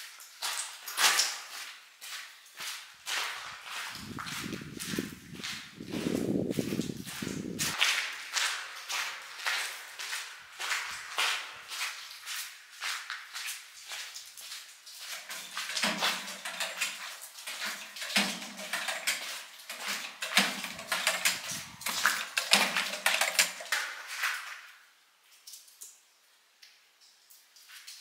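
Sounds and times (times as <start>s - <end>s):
footsteps crunching on gritty rock: 1.3s - 16.3s.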